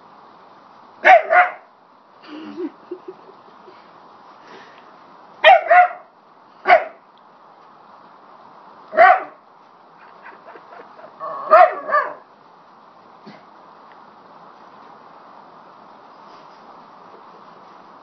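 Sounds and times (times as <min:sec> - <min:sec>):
dog barking: 0:01.0 - 0:01.7, 0:05.4 - 0:07.0, 0:08.9 - 0:09.4, 0:11.3 - 0:12.2.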